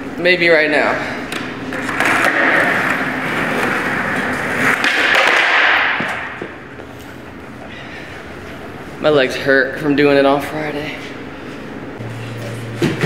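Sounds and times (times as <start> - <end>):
skateboard clack: 1.3 - 6.5
skateboard wheels rolling on concrete: 1.7 - 6.8.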